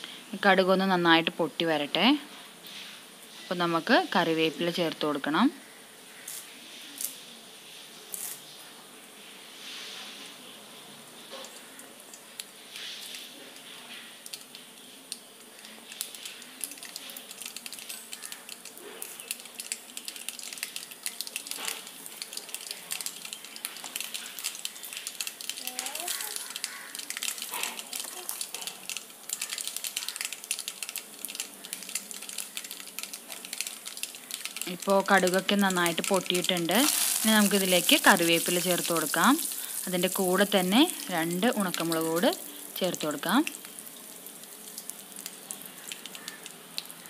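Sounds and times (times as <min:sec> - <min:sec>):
seeds sizzling in oil: 0:00.0 - 0:47.0
mustard seeds popping: 0:11.4 - 0:47.0.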